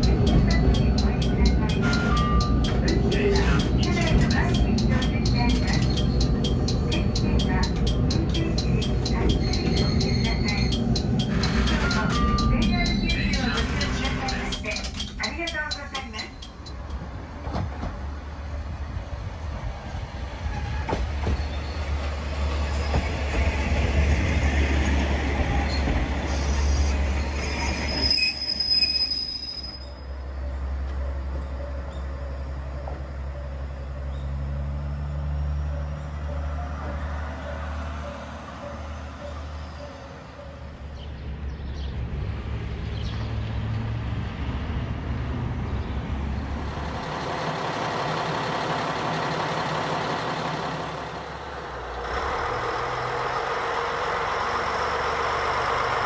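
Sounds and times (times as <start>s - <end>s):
train wheels squealing on rails: 0.0s - 18.1s, 19.8s - 34.7s
diesel engines droning: 0.0s - 56.0s.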